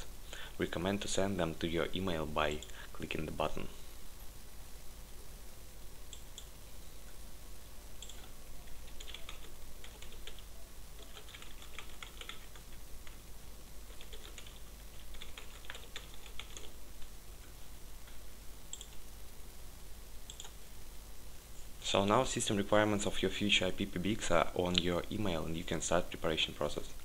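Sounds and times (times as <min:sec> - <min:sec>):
computer keyboard typing: 0:08.0 - 0:13.2, 0:13.9 - 0:16.8, 0:18.7 - 0:19.0, 0:20.3 - 0:20.6.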